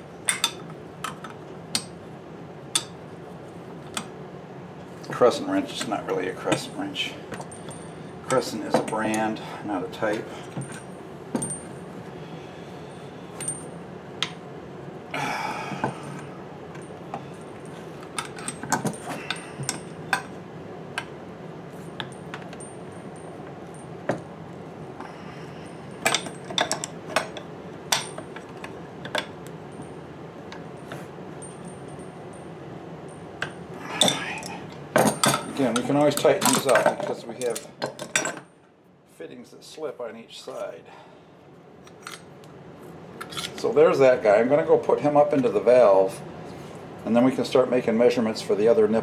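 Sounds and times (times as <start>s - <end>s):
low background hum: 0.0s - 49.0s
metal tools clinking on pipe fitting: 26.0s - 28.2s, 34.0s - 38.4s.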